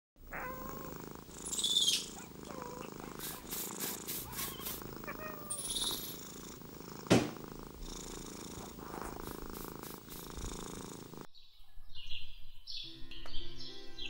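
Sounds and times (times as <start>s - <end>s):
cat purring: 0.2s - 11.3s
birds chirping: 0.2s - 14.0s.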